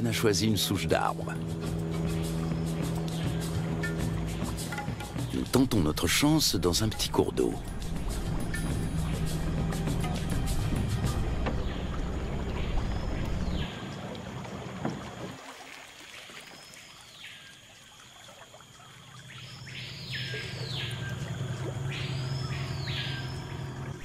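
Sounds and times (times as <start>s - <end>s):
low steady hum: 0.3s - 15.4s
bird whistling call: 21.9s - 23.6s.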